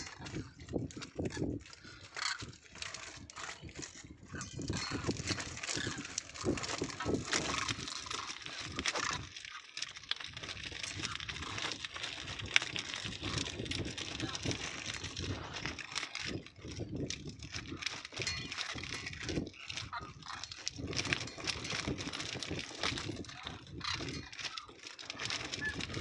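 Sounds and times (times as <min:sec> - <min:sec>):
cranes calling: 0:01.2 - 0:09.6, 0:23.3 - 0:26.0.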